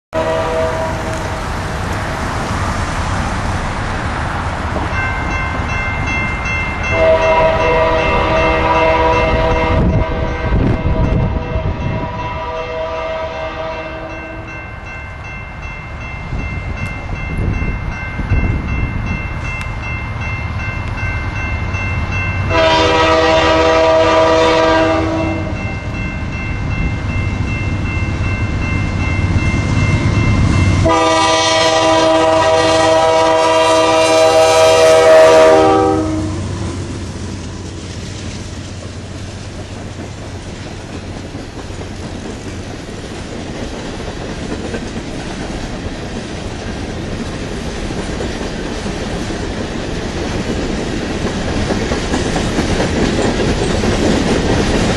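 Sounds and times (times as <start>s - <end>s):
locomotive air horn blasts: 0.1s - 1.4s, 6.9s - 14.5s, 22.5s - 25.7s, 30.8s - 36.9s
passing train rumble: 0.1s - 54.9s.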